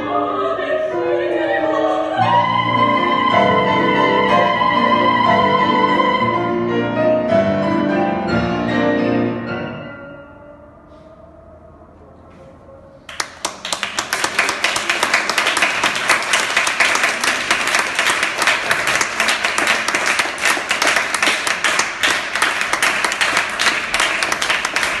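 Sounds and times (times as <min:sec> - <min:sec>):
audience applauding: 0:13.1 - 0:25.0.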